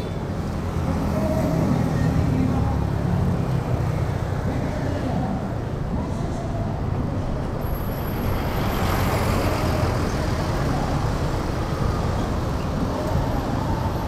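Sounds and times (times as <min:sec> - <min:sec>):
road traffic: 0:00.0 - 0:14.0.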